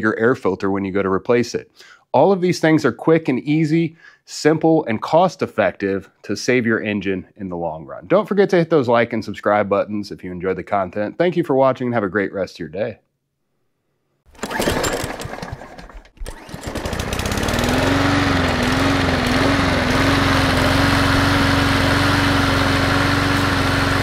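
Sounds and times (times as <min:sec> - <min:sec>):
mower engine cranking and running: 0:14.3 - 0:24.0.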